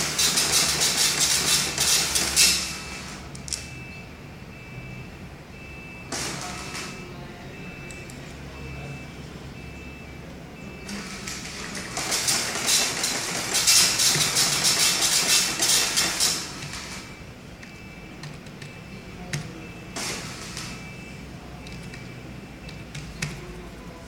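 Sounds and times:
dot-matrix printer rattling: 0.0s - 2.8s, 10.9s - 17.1s, 18.2s - 20.8s.

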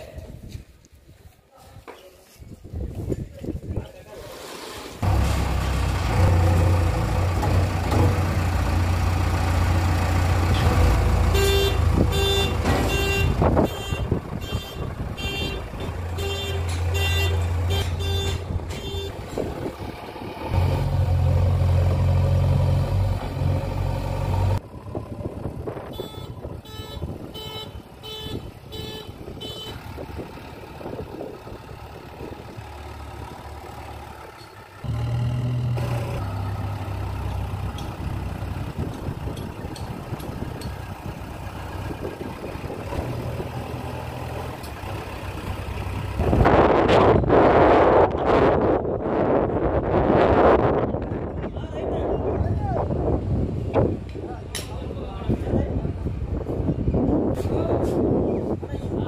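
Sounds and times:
diesel engine revving: 4.3s - 50.8s.

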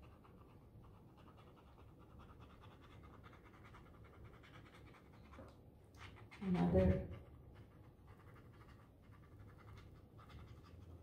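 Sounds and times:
pointed tool scratching paint: 6.0s - 11.0s.

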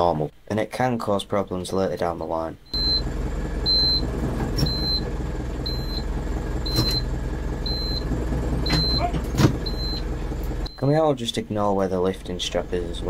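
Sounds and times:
diesel tractor engine running: 2.8s - 10.8s, 12.2s - 13.0s.

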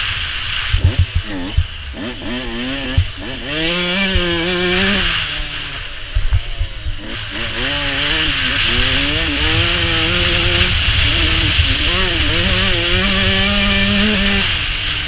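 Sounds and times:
motocross bike revving: 0.0s - 15.0s
wind hiss on microphone: 6.1s - 15.0s.

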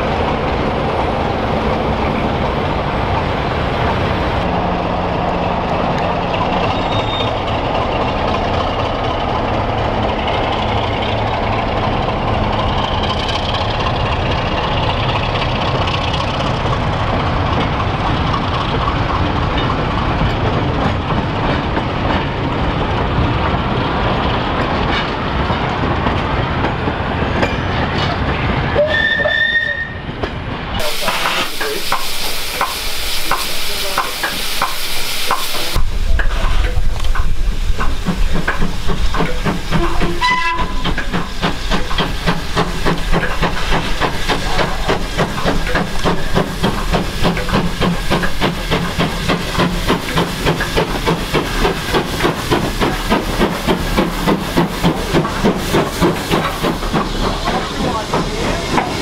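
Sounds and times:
railway wagons clattering: 0.0s - 59.0s
steam whistle: 28.8s - 30.0s, 39.8s - 40.8s
loud steam hiss: 30.8s - 59.0s
steam train exhaust beats: 30.8s - 59.0s.

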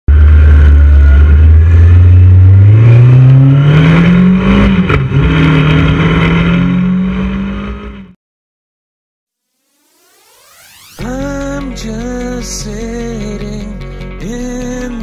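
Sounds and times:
motorcycle engine accelerating: 0.1s - 8.2s.

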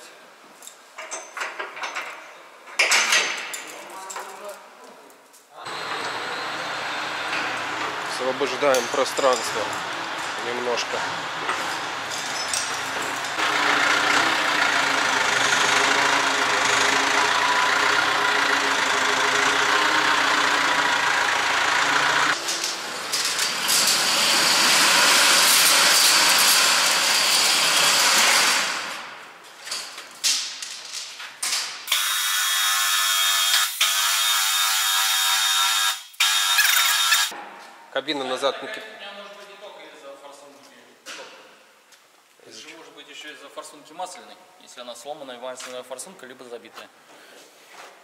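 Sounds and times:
diesel engine running: 5.7s - 8.3s, 12.9s - 22.4s.

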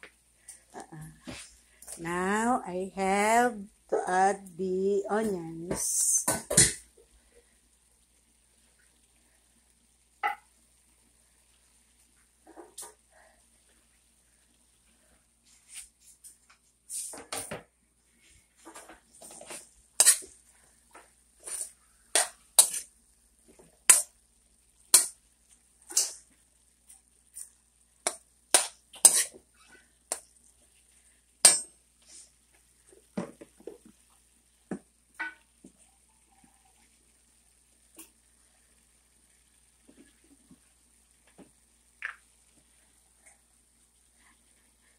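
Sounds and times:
metal spoon scraping metal wok: 20.0s - 20.3s, 21.4s - 22.9s, 25.9s - 26.2s, 28.1s - 29.4s.

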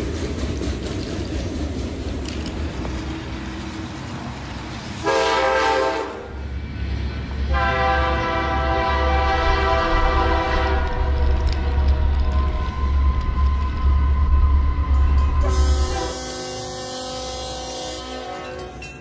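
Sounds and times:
train horn blasts: 5.0s - 6.4s, 7.5s - 12.4s, 15.0s - 18.8s.

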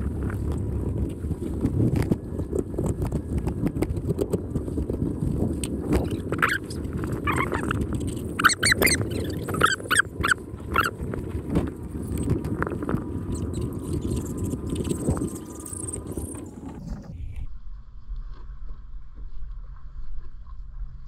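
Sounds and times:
water along a rocky shore: 0.0s - 21.0s
wind: 0.0s - 21.0s
short high animal calls: 8.4s - 10.9s.

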